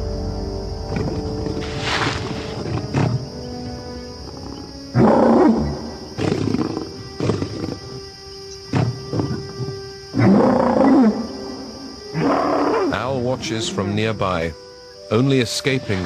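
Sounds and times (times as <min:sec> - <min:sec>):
background music sustained notes: 0:00.0 - 0:16.0.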